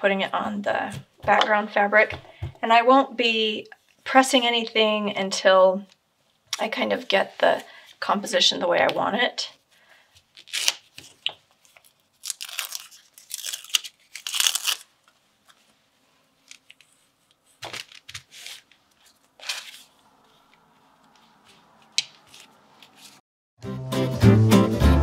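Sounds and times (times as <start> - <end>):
paper crinkling: 10.2 - 15.8, 16.4 - 23.2
adhesive tearing with crackles: 10.4 - 14.9.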